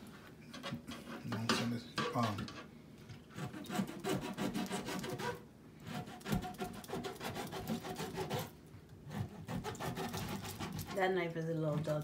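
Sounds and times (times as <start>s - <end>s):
knife sawing through fish: 3.3s - 8.5s, 9.1s - 11.1s.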